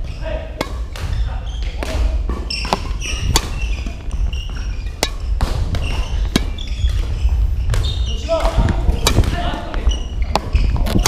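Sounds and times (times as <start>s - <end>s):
shoes squeaking on wooden floor: 0.0s - 11.0s
racket striking shuttlecock: 0.5s - 11.0s.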